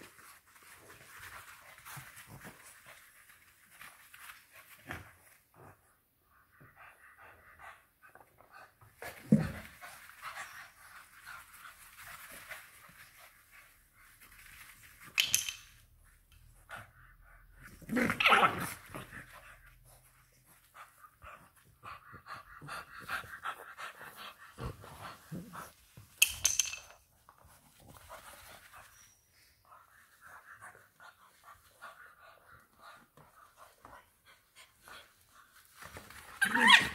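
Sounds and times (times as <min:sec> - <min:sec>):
puppies panting and snuffling: 0:19.2 - 0:26.1, 0:27.3 - 0:36.9.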